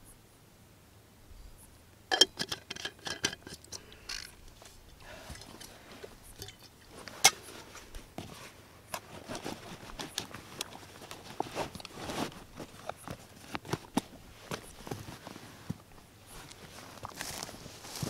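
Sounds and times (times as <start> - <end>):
small clicks and knocks: 2.1 - 4.6
canvas rustling: 6.8 - 18.0.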